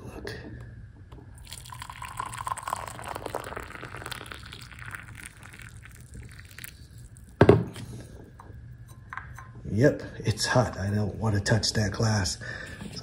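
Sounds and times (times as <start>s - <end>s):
water pouring into a glass: 1.4s - 7.4s
kettle set down with a knock: 7.4s - 7.8s.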